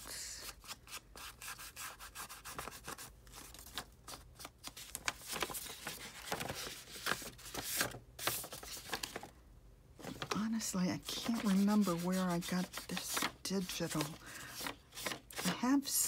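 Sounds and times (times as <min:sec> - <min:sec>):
pad rubbing on paper: 0:11.1 - 0:13.3.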